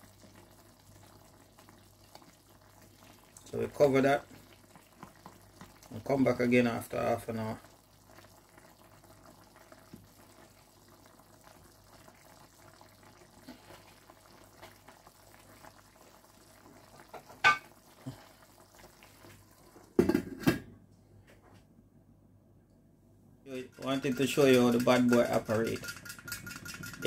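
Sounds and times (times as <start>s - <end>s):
curry bubbling: 0.0s - 20.4s, 23.5s - 27.0s
glass lid clattering on pot: 17.4s - 17.7s, 23.8s - 27.0s.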